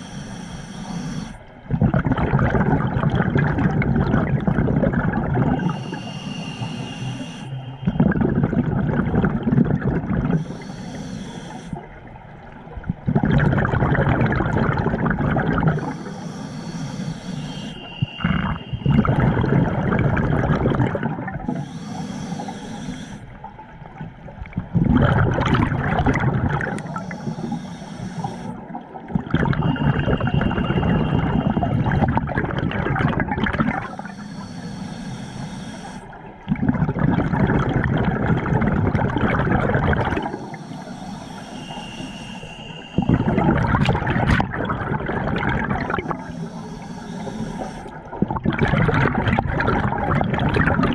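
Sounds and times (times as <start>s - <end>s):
regulator inhale hiss: 0.0s - 1.5s, 5.6s - 8.7s, 10.3s - 12.0s, 15.6s - 19.8s, 21.4s - 23.5s, 26.6s - 28.8s, 29.6s - 32.0s, 33.8s - 36.4s, 39.7s - 44.4s, 45.8s - 48.1s
exhaled bubbles rushing: 1.6s - 6.1s, 7.0s - 10.5s, 11.7s - 16.0s, 17.7s - 21.6s, 23.4s - 27.2s, 28.5s - 34.1s, 36.1s - 40.6s, 42.9s - 46.6s, 47.2s - 50.9s.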